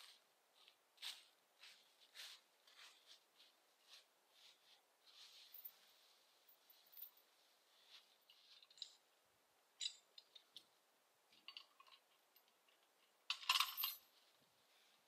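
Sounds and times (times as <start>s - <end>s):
metallic clicks and clinks: 8.3s - 9.0s, 9.8s - 10.7s, 11.3s - 14.1s.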